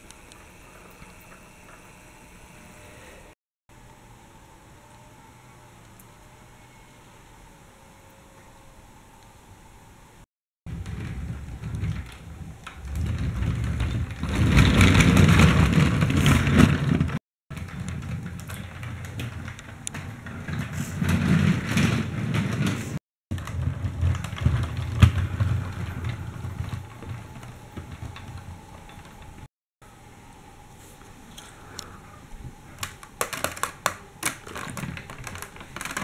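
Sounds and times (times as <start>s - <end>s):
toy tram rolling and whirring: 10.7s - 29.5s.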